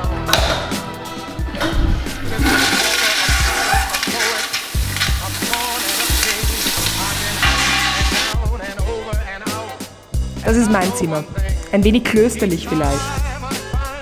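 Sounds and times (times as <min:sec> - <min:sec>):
background music with beat: 0:00.0 - 0:14.0
toilet flushing: 0:01.4 - 0:08.4.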